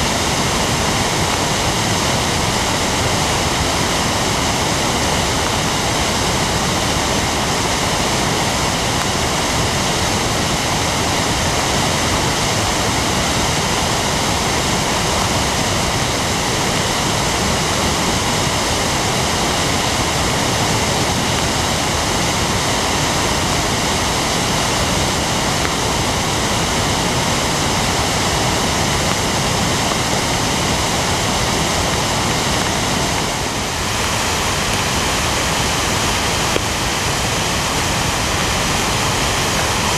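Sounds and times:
floodwater roaring: 0:00.0 - 0:39.9.

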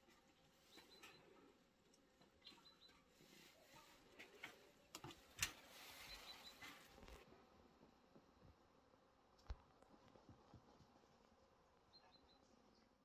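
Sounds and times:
faint high chirps: 0:00.5 - 0:01.6, 0:02.3 - 0:04.1, 0:05.8 - 0:06.9, 0:11.8 - 0:13.0.

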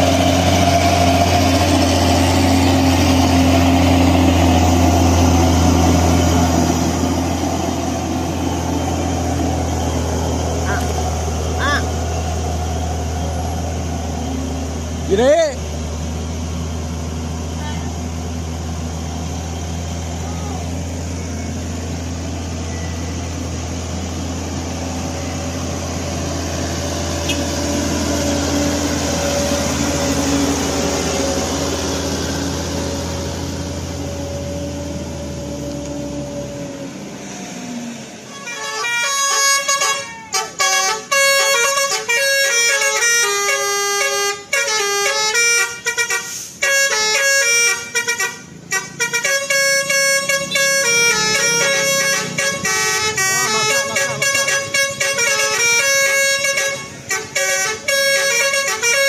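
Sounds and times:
road noise: 0:00.0 - 0:59.0
truck engine running: 0:00.0 - 0:59.0
multi-tone air horn melody: 0:38.3 - 0:59.0.

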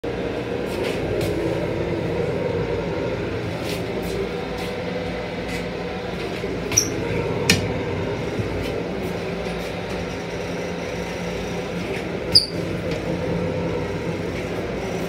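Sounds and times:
train hum and rumble: 0:00.0 - 0:15.0
brief high squeak: 0:12.3 - 0:12.6.

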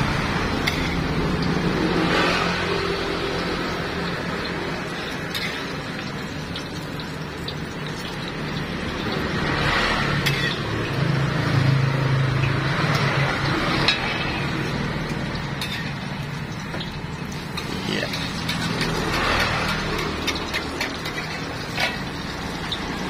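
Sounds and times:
food sizzling on a griddle: 0:00.1 - 0:23.0
metal spatulas scraping and tapping: 0:00.6 - 0:01.1, 0:05.3 - 0:05.7, 0:10.2 - 0:10.7, 0:15.6 - 0:16.0, 0:17.5 - 0:22.2.

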